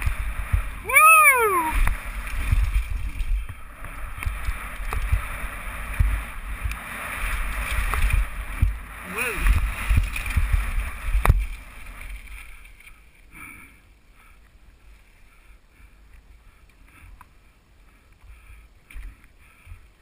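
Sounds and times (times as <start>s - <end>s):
bike knocks and rattles on gravel: 0.0s - 0.8s, 1.8s - 12.9s
wind rumble on microphone: 0.0s - 13.3s.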